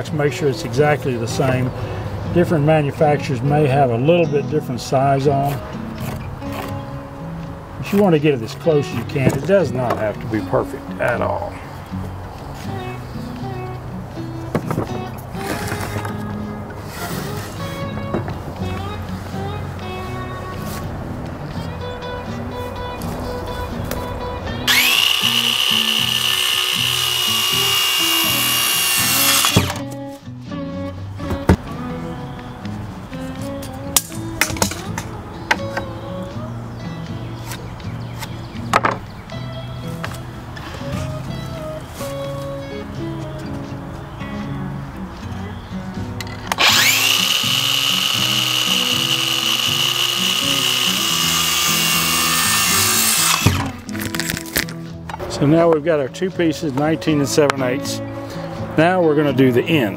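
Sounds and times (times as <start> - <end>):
background music: 0.0 - 59.9
circular saw cutting wood: 24.7 - 29.8, 46.5 - 53.8.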